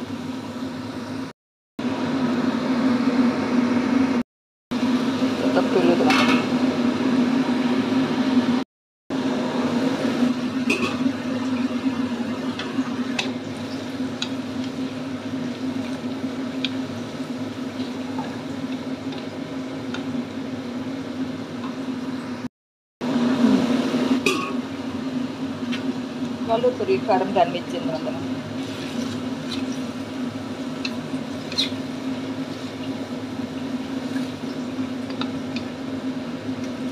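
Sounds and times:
vegetables simmering and sizzling: 0:28.0 - 0:36.0.

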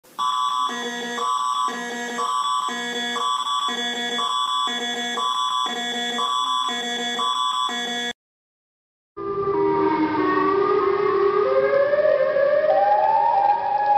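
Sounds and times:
electronic alert tone: 0:00.2 - 0:08.1
steady high tone: 0:00.2 - 0:08.2.

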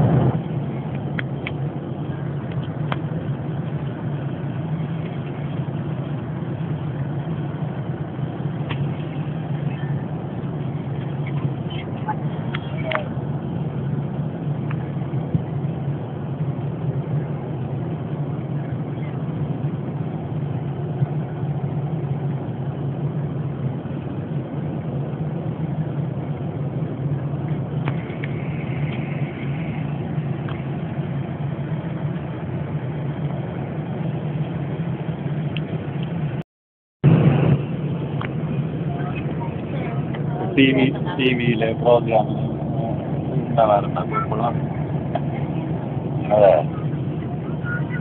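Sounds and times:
airliner cabin drone: 0:00.0 - 0:36.4, 0:37.0 - 0:48.0.

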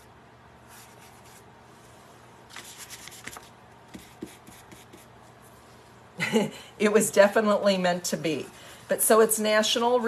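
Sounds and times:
scratchy brushing: 0:00.6 - 0:05.7.

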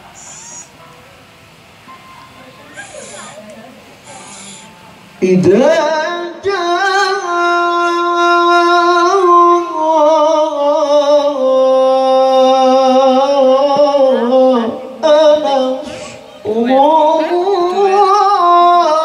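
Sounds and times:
man reciting melodically: 0:05.2 - 0:19.0.

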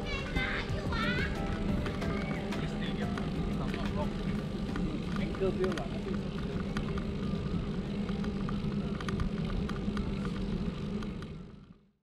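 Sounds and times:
bicycle rolling: 0:00.0 - 0:12.0
small clicks: 0:04.7 - 0:11.4.

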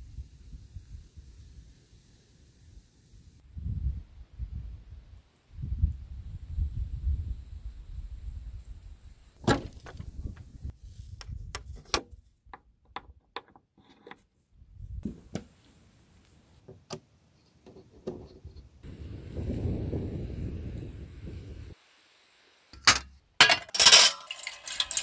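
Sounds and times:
wind rumble on microphone: 0:00.0 - 0:01.7, 0:03.4 - 0:11.8, 0:14.6 - 0:15.1, 0:18.2 - 0:21.8.

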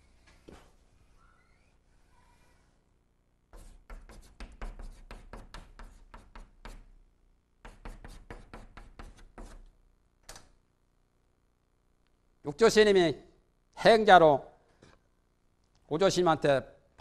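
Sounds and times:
chalk tapping and scraping on blackboard: 0:03.5 - 0:06.9, 0:07.6 - 0:09.7.

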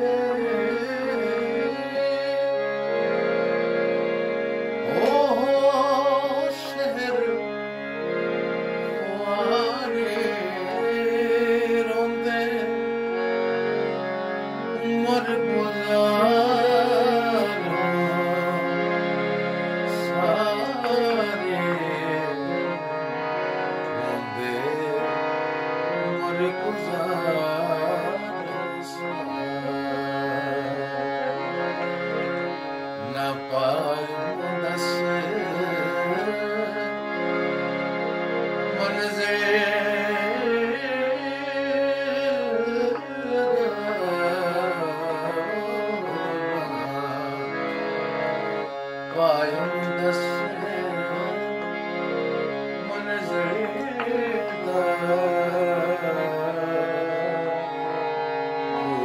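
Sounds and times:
harmonium chords: 0:00.0 - 0:59.0
man singing folk song: 0:04.9 - 0:07.3, 0:08.8 - 0:12.7, 0:14.8 - 0:18.6, 0:19.9 - 0:22.4, 0:33.0 - 0:36.8, 0:38.8 - 0:47.4, 0:49.1 - 0:51.5, 0:52.8 - 0:57.4.

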